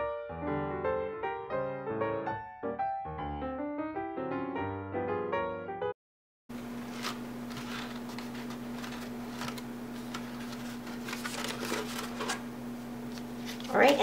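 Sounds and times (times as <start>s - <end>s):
paper rustling and crinkling: 6.6s - 12.5s, 13.1s - 14.0s
steady low hum: 6.6s - 14.0s.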